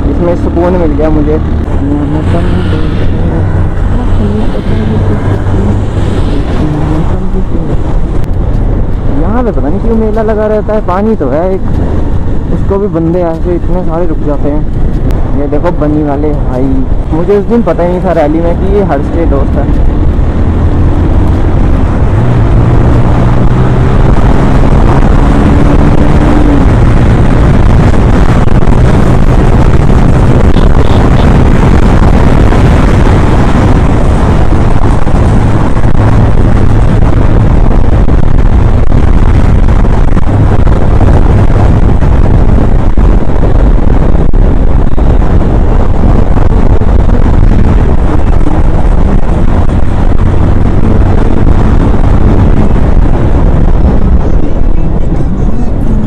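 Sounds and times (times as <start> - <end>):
motorcycle engine running: 0.0 - 10.1, 16.6 - 56.0
wind buffeting microphone: 19.5 - 56.0.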